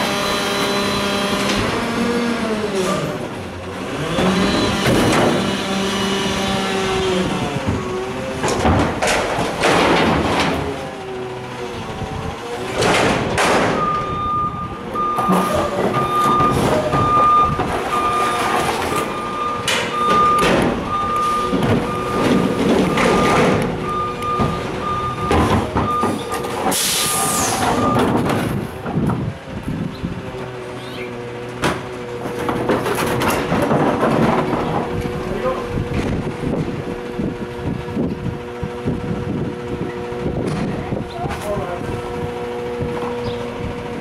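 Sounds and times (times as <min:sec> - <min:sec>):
diesel engine idling: 0:05.7 - 0:44.0
reversing alarm beeping: 0:13.7 - 0:28.2.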